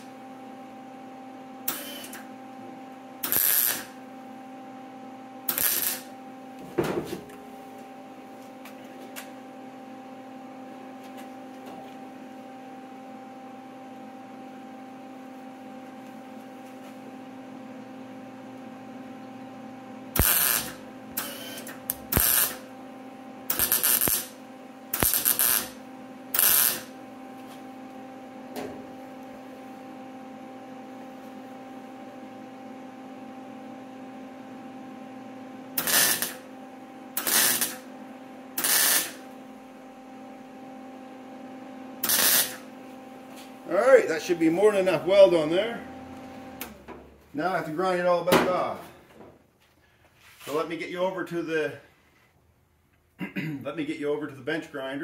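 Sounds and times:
steady electrical hum: 0:00.0 - 0:55.0
welder bursts: 0:01.6 - 0:02.3, 0:03.2 - 0:04.0, 0:05.4 - 0:06.2, 0:20.1 - 0:22.7, 0:23.4 - 0:27.0, 0:35.8 - 0:36.5, 0:37.2 - 0:37.9, 0:38.5 - 0:39.3, 0:42.0 - 0:42.7.

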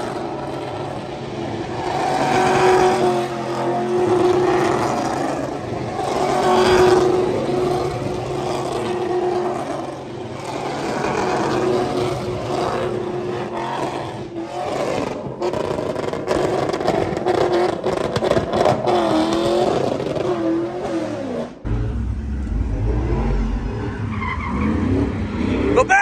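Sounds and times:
truck engine revving: 0:00.0 - 0:25.8
low engine rumble: 0:21.6 - 0:25.8.

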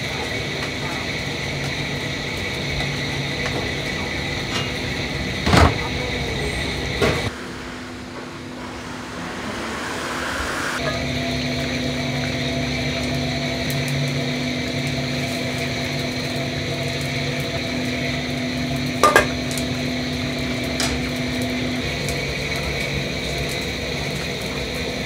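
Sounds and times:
gas burners: 0:00.0 - 0:25.0
kitchen hum: 0:00.0 - 0:25.0
metal utensils clanking: 0:19.0 - 0:19.6, 0:20.7 - 0:21.1.

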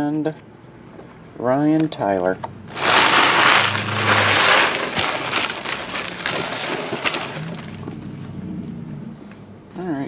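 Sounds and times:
trading card packaging rustling: 0:02.7 - 0:07.9.

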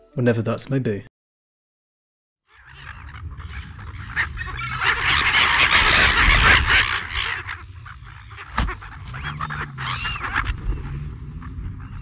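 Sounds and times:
birds honking chorus: 0:02.5 - 0:12.0.

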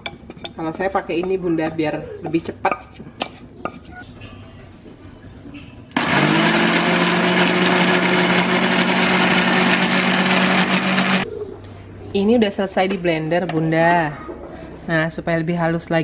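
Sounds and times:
blender motor running: 0:06.0 - 0:11.2.

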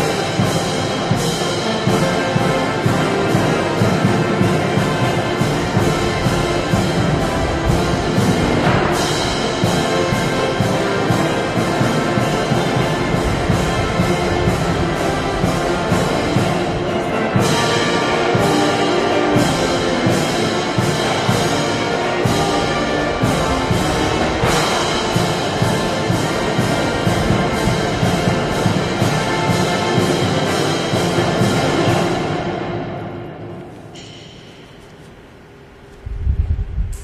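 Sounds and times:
brass band playing: 0:00.0 - 0:34.0
timpani and drums march beat: 0:00.0 - 0:34.8.

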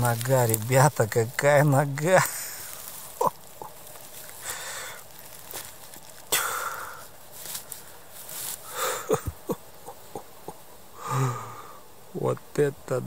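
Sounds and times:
soil and roots tearing: 0:00.0 - 0:09.6
man humming: 0:08.7 - 0:11.7.

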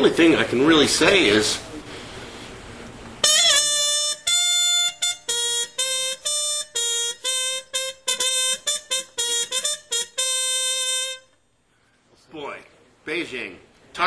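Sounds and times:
trumpet playing short tune: 0:03.2 - 0:11.4.

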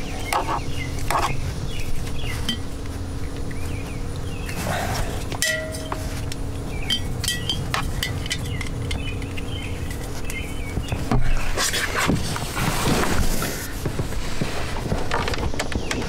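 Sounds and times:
steady low hum: 0:00.0 - 0:16.0
bird chirps: 0:06.6 - 0:11.5
rustling and clattering: 0:06.9 - 0:16.0.

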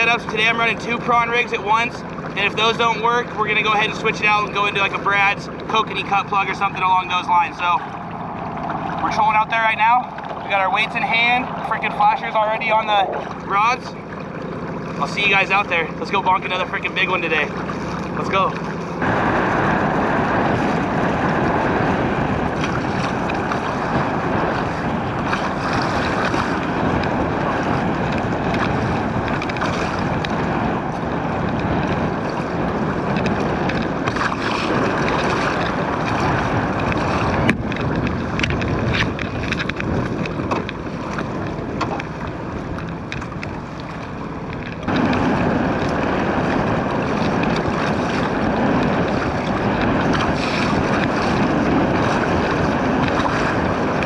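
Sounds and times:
water slapping against hull: 0:00.0 - 0:54.0
wind buffeting microphone: 0:00.0 - 0:54.0.

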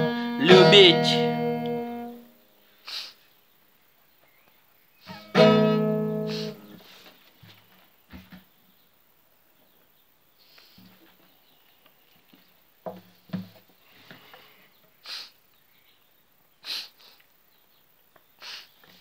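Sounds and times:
person sniffing: 0:02.7 - 0:03.2, 0:05.0 - 0:07.2, 0:10.4 - 0:10.9, 0:13.9 - 0:15.4, 0:16.6 - 0:17.3, 0:18.4 - 0:19.0.

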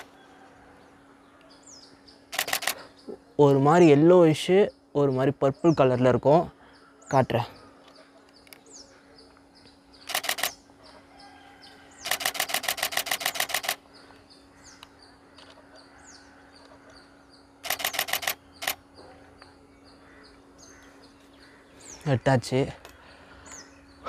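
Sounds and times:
small birds chirping: 0:00.0 - 0:24.0
camera shutter bursts: 0:02.3 - 0:02.9, 0:10.0 - 0:10.6, 0:12.0 - 0:13.8, 0:17.6 - 0:18.8.

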